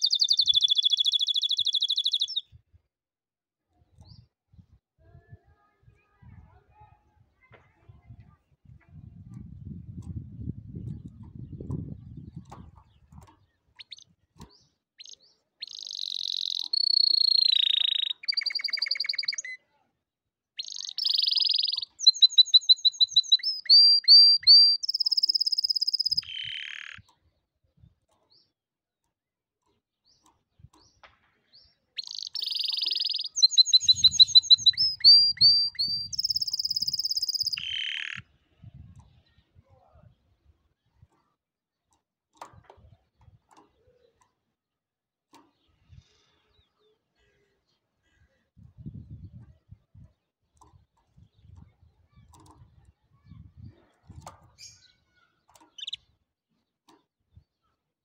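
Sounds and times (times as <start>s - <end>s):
canary singing trills: 0.0s - 2.6s, 10.8s - 19.6s, 20.6s - 27.1s, 32.0s - 38.2s, 53.7s - 56.2s.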